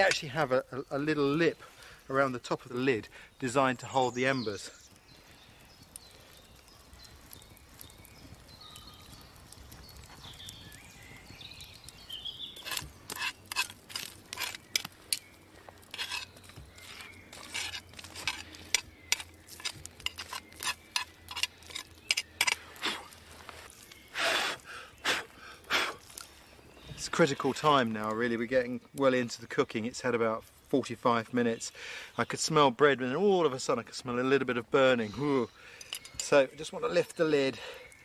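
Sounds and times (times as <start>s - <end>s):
embers crackling and popping: 0.0s - 38.0s
sharp irregular cracks: 4.8s - 26.4s.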